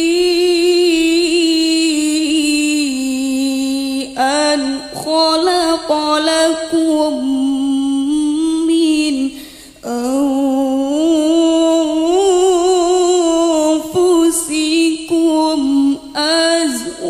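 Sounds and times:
woman reciting in melodic chant: 0.0s - 17.0s.

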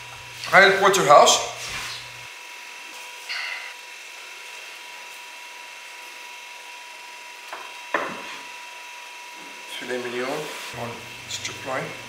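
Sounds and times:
knocks on wooden cutting board: 7.5s - 8.3s.

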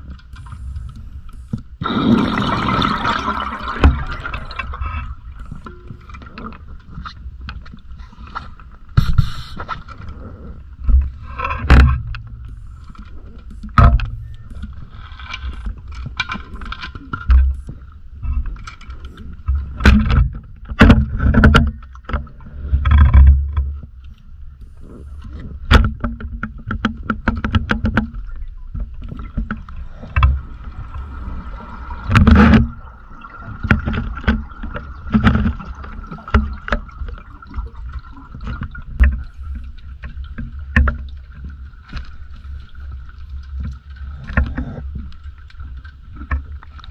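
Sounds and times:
underwater knocks and bumps: 0.0s - 10.1s, 10.8s - 46.9s
underwater gurgling rushes: 1.8s - 6.5s, 29.2s - 44.9s.

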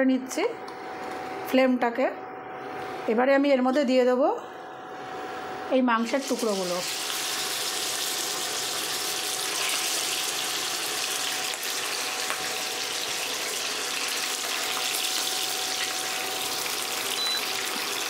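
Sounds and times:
chicken sizzling in hot oil: 6.1s - 18.0s.

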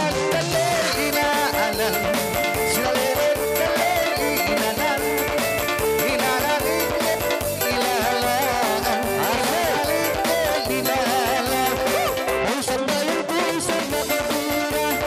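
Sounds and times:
busy drum beat: 0.0s - 15.0s
wavering melody line: 0.6s - 12.4s.

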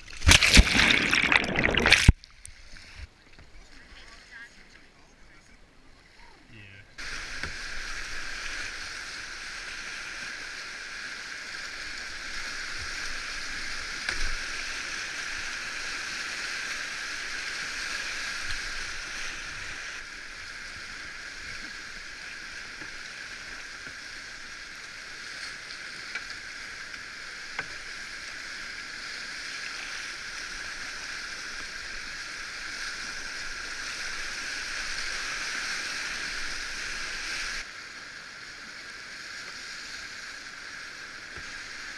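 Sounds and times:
rapids rushing water: 0.0s - 2.1s.

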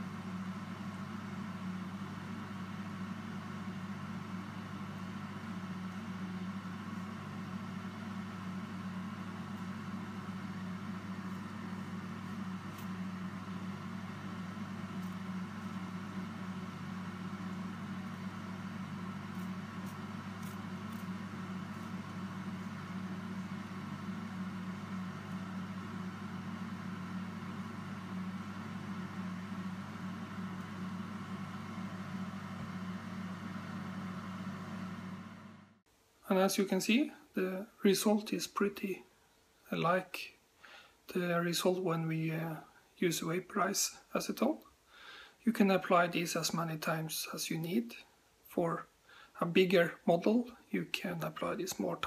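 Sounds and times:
electric fan humming: 0.0s - 38.8s.

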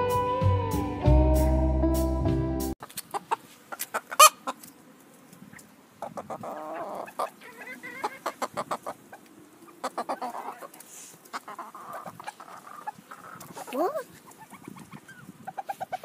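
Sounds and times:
chickens clucking: 2.8s - 4.8s, 5.5s - 16.0s
chicken squawk: 3.1s - 4.6s, 5.5s - 16.0s.

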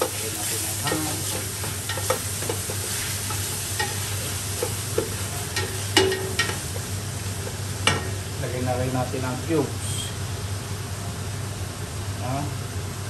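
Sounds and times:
food sizzling in oil: 0.0s - 12.8s
spoon knocking against metal pot: 5.0s - 6.6s.

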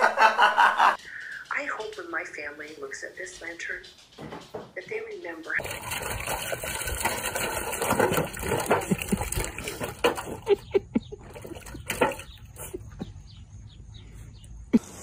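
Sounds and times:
puppy splashing water in a bowl: 5.6s - 13.0s.

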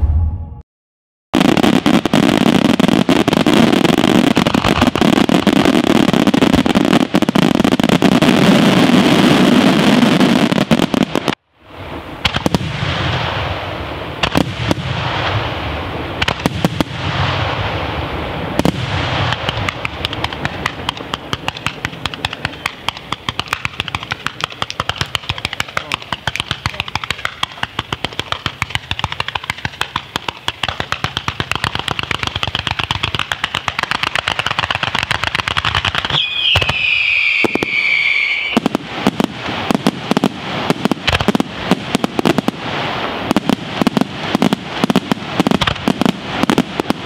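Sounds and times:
fireworks crackling and banging: 1.4s - 47.0s
firework shells popping: 19.3s - 38.6s.

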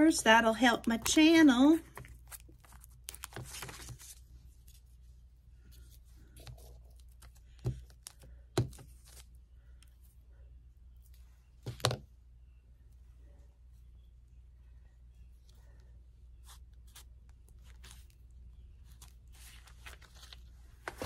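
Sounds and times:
paper rustling: 1.9s - 5.0s, 18.8s - 21.0s.

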